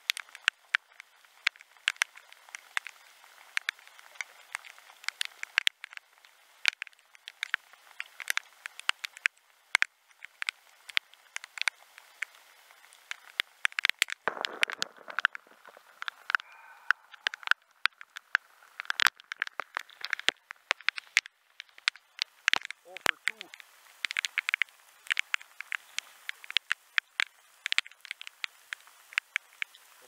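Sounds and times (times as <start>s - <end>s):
raindrops tapping on camera housing: 0.0s - 30.0s.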